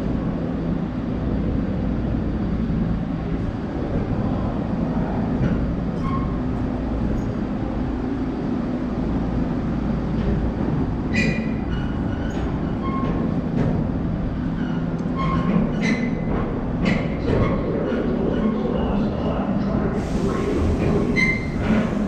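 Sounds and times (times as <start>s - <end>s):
subway train rumbling on tracks: 0.0s - 22.0s
metallic squeaks and clanks: 6.0s - 6.4s, 11.1s - 13.4s, 14.4s - 17.6s.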